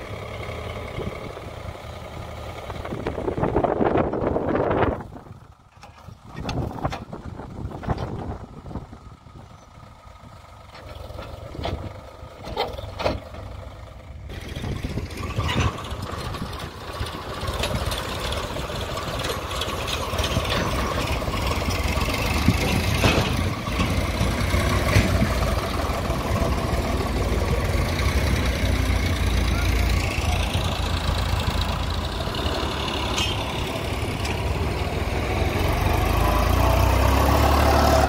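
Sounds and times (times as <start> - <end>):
tractor diesel engine running: 0.0 - 38.0.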